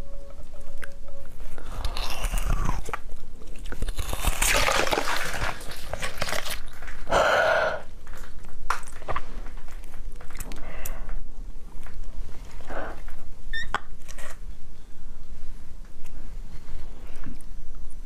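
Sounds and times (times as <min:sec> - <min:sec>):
crunchy chewing: 0:00.7 - 0:07.1
wet mouth noises: 0:01.6 - 0:06.6.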